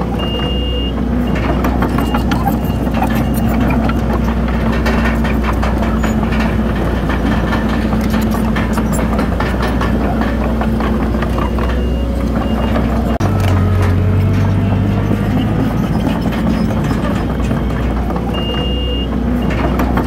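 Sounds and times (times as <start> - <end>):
diesel machinery engine drone: 0.0 - 20.0
machinery clatter and knocks: 0.0 - 20.0
reversing alarm beeping: 0.1 - 4.0, 11.3 - 13.7, 17.2 - 20.0.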